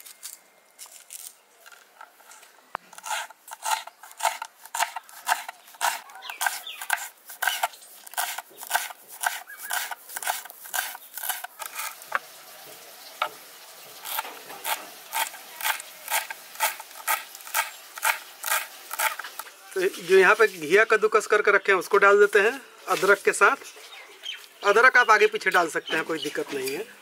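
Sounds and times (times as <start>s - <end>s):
knife chopping on wooden board: 3.0s - 11.9s, 14.0s - 19.4s.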